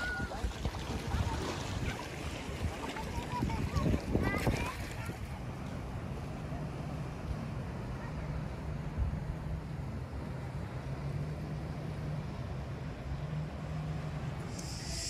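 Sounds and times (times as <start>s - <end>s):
sea: 0.0s - 15.0s
wind: 0.0s - 15.0s
low engine drone: 5.2s - 15.0s.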